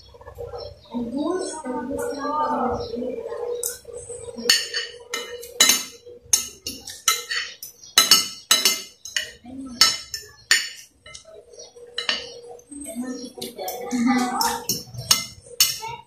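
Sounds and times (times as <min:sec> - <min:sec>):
cutlery clinking on glass plate: 0:04.5 - 0:11.3, 0:12.0 - 0:12.4, 0:14.2 - 0:16.0.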